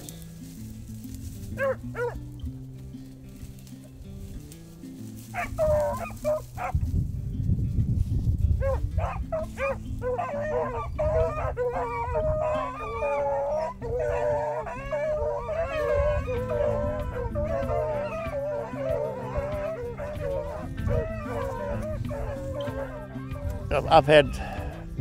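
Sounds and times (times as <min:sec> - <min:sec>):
background music: 0:00.0 - 0:25.0
dogs baying and yelping: 0:01.4 - 0:02.3, 0:05.1 - 0:06.8, 0:08.5 - 0:24.9.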